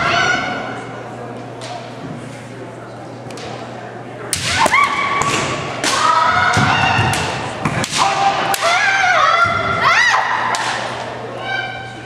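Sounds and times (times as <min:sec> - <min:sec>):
bamboo swords striking: 0:04.3 - 0:08.8
fencers shouting long yells: 0:05.8 - 0:10.8.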